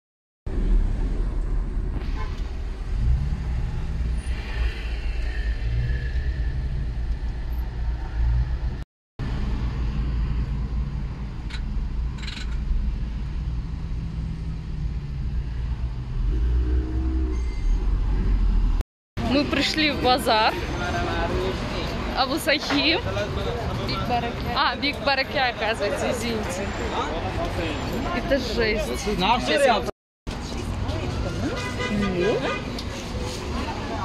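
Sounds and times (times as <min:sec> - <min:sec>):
car engine and road rumble: 0:00.5 - 0:25.4.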